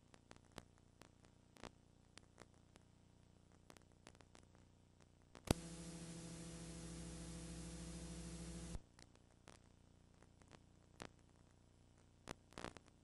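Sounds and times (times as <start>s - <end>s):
electrical mains hum with hiss: 0.0s - 13.0s
sharp click: 5.5s - 6.1s.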